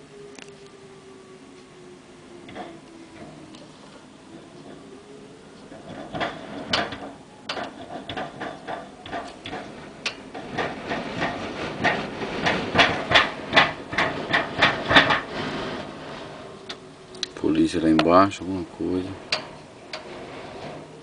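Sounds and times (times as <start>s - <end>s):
steady hiss: 0.0s - 21.0s
clacking knocks: 5.8s - 15.3s.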